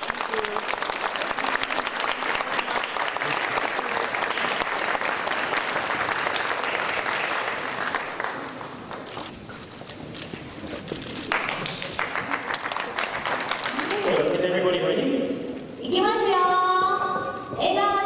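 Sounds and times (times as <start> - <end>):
children applauding: 0.0 - 9.2, 11.3 - 14.4.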